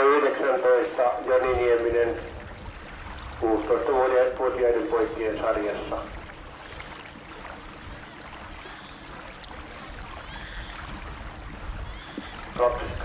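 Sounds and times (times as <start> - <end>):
choppy lake water: 0.0 - 13.0
wind rumbling on microphone: 1.2 - 13.0.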